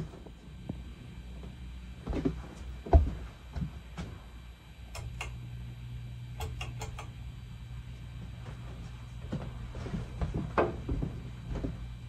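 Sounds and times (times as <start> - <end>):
ceiling fan humming: 0.0 - 12.0
clicks and knocks: 6.4 - 7.1.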